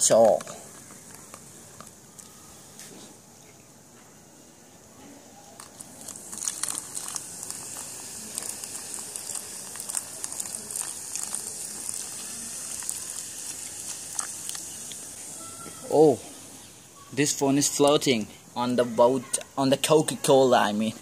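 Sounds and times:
soda fizzing as poured: 5.6s - 16.0s.

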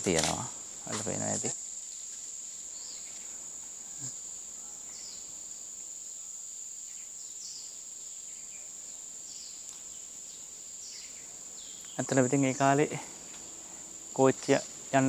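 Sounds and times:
forest insects droning: 0.0s - 15.0s.

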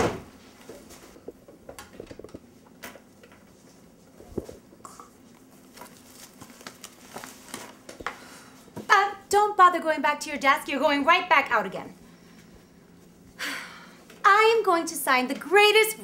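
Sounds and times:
coffee cups and papers handled: 0.6s - 8.2s.

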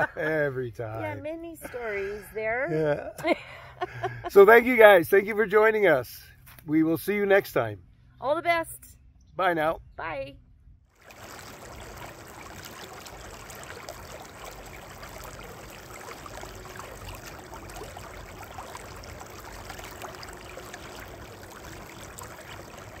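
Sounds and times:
river water rushing: 11.0s - 23.0s
small water splashes: 11.0s - 23.0s.

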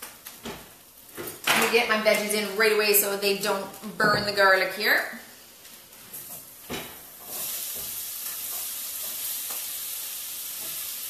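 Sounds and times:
peppers sizzling in hot oil: 4.5s - 11.0s.

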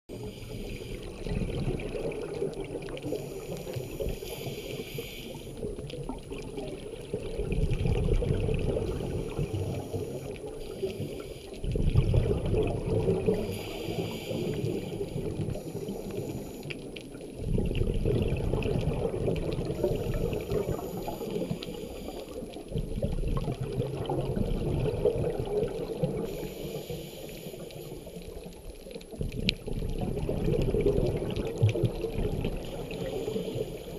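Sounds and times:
exhaust bubbles rumbling underwater: 0.1s - 33.9s
regulator hiss: 3.0s - 5.7s, 13.3s - 16.8s, 19.8s - 22.6s, 26.3s - 28.4s, 32.6s - 33.9s.

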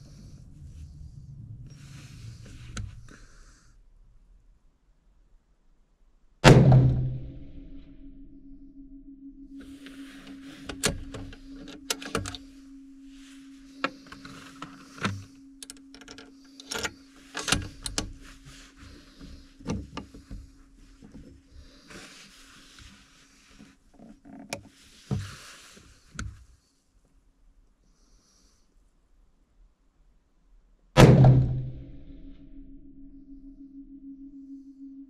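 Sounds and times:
steady low hum: 0.0s - 24.2s, 31.0s - 35.0s
rifle clicks and knocks: 10.2s - 12.4s, 13.8s - 18.2s.

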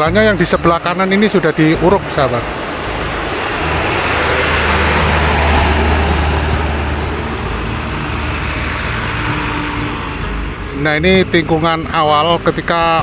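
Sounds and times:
heavy truck driving past: 1.6s - 11.6s.

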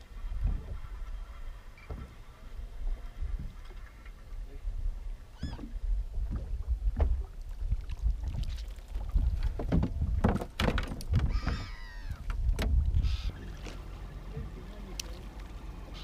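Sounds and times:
water slapping against hull: 5.4s - 15.8s
fishing gear knocking and rattling: 9.4s - 11.7s.

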